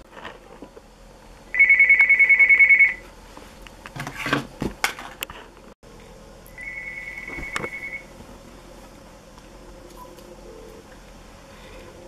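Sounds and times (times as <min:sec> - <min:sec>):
cordless phone ringing: 0:06.6 - 0:08.1.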